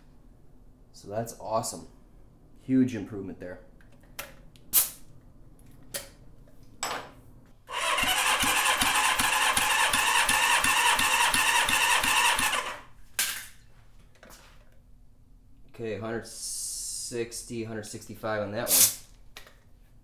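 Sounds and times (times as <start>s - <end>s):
engine cranking with thumps: 7.8s - 12.8s.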